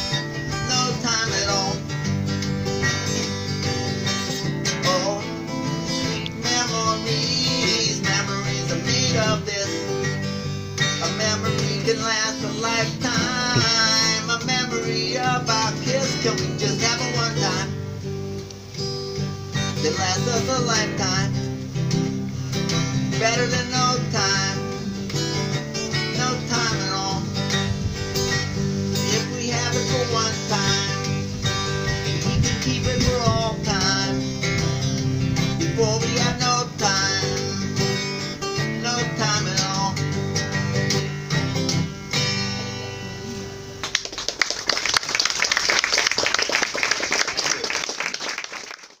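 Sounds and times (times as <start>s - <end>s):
acoustic guitar playing: 0.0s - 44.8s
audience applause: 43.8s - 49.0s.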